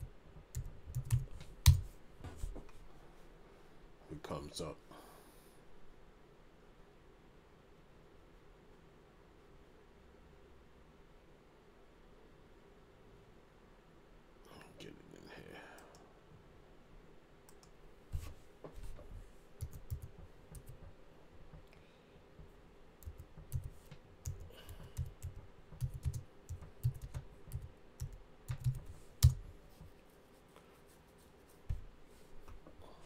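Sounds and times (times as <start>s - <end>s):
typing on computer keyboard: 0.0s - 1.9s, 19.6s - 20.9s, 23.0s - 29.4s.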